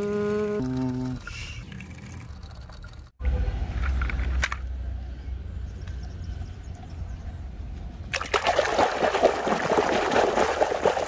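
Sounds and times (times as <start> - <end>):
water splashing and trickling: 0.3 - 3.2, 8.1 - 11.0.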